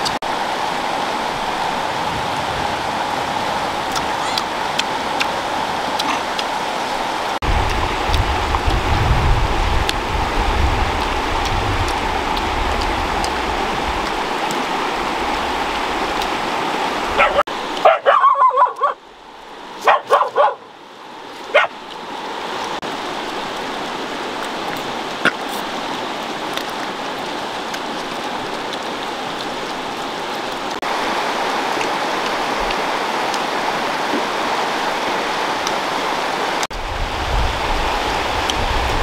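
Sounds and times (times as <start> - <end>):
river flowing: 0.0 - 39.0
dog yipping: 17.2 - 19.0, 19.8 - 20.6, 21.5 - 21.8.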